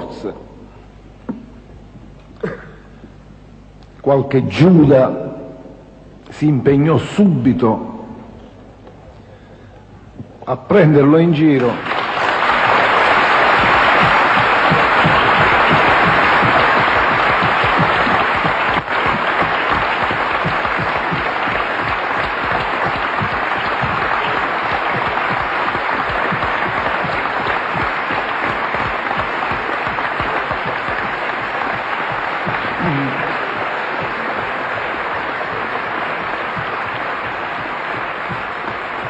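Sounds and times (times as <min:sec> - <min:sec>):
audience applauding: 0:11.4 - 0:39.0.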